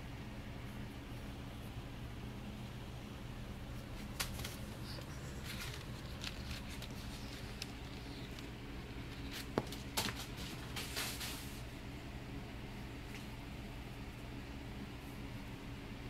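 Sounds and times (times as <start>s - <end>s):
steady low hum: 0.0s - 16.0s
paper ball crinkling: 3.8s - 11.7s
cat scrambling on tile floor: 4.0s - 11.6s.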